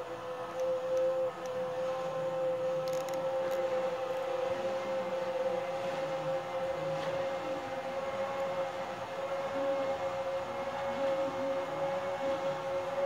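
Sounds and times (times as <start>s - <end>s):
roller shade motors humming: 0.0s - 13.0s.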